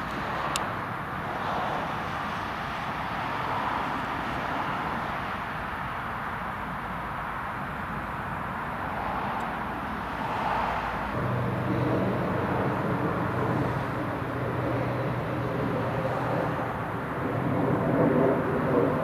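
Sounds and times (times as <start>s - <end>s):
jet engines idling: 0.0s - 19.0s
steady low hum: 5.3s - 19.0s.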